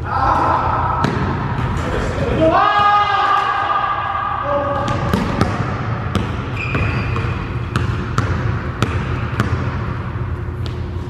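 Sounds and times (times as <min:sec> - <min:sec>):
basketball bouncing on wooden floor: 0:04.8 - 0:11.0.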